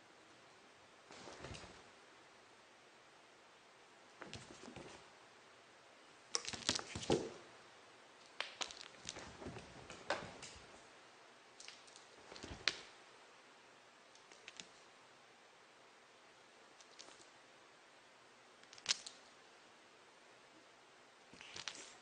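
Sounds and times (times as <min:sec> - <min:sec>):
cat rustling and clicking on floor: 0:01.1 - 0:01.9, 0:04.2 - 0:05.1, 0:06.3 - 0:07.5, 0:08.2 - 0:10.9, 0:11.6 - 0:13.0, 0:21.4 - 0:22.0.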